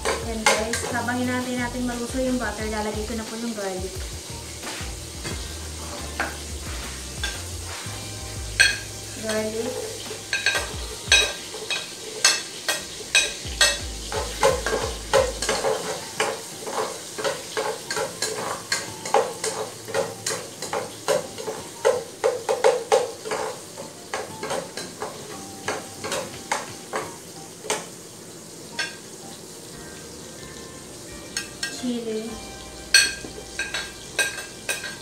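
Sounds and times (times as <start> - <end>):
garlic sizzling in oil: 0.0 - 35.0
spoon scraping a pot: 8.6 - 21.6, 22.5 - 25.3.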